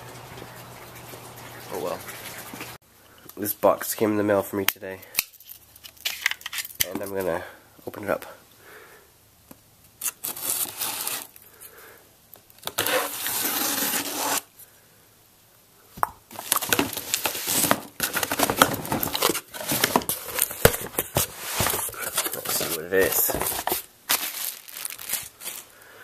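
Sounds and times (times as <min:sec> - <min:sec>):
knife slitting packing tape: 0:10.0 - 0:11.4, 0:12.6 - 0:14.5
tape tearing: 0:10.0 - 0:11.4, 0:12.5 - 0:14.5, 0:16.3 - 0:25.7
cardboard flaps crackling: 0:16.4 - 0:25.7.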